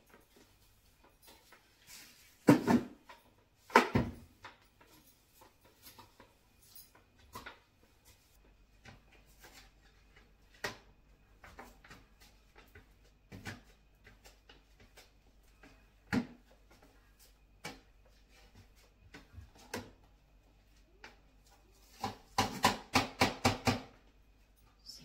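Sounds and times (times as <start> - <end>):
broom knocks and scrapes on tiles: 0.0 - 20.1
broom knocking against plastic bin: 2.4 - 3.0.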